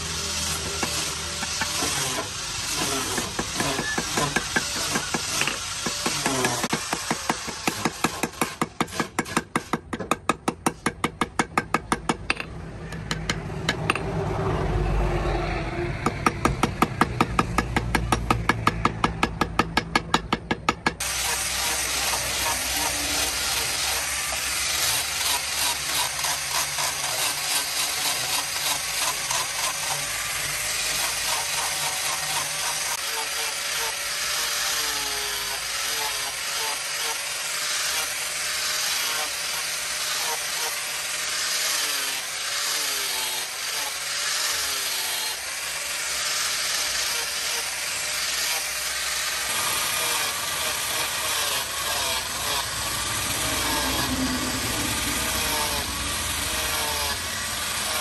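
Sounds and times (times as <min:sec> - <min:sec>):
angle grinder sanding wood: 0:00.0 - 0:12.2, 0:16.0 - 0:58.0.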